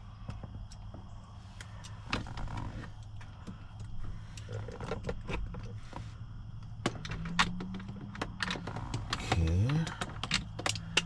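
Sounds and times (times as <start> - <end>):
steady low hum: 0.0 - 11.0
plastic clicks and knocks: 6.7 - 11.0.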